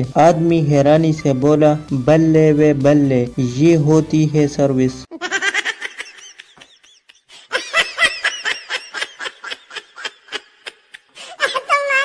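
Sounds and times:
high-pitched snickering laughter: 5.1 - 12.0.

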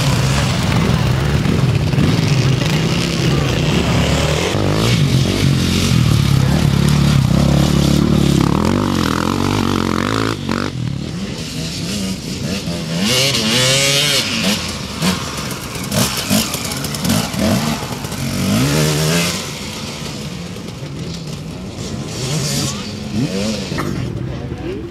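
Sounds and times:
motorcycle engines revving: 0.0 - 24.9.

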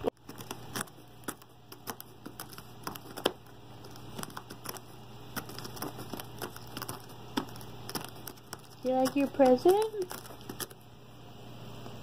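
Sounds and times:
cats crunching dry treats: 0.3 - 10.8.

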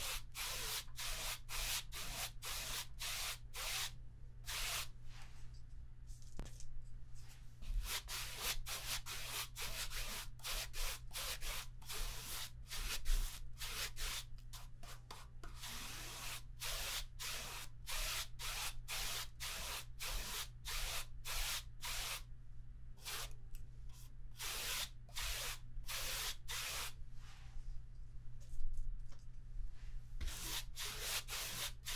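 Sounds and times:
paintbrush scratching on canvas: 30.2 - 31.9.

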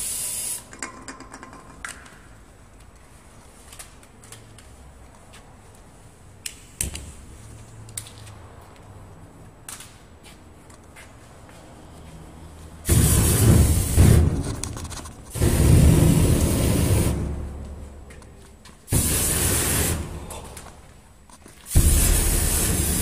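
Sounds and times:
rush of burning spray: 12.8 - 17.5, 18.9 - 20.7, 21.7 - 23.0.

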